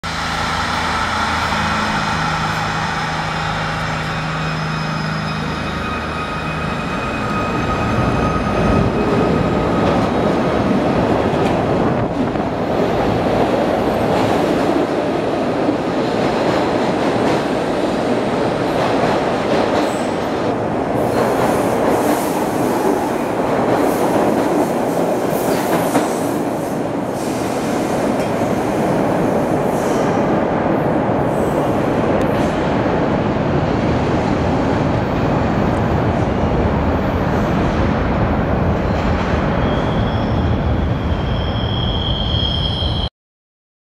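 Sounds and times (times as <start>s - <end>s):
electric train whine: 0.0s - 14.9s, 39.6s - 43.1s
train wheels rumbling on rails: 0.0s - 41.8s.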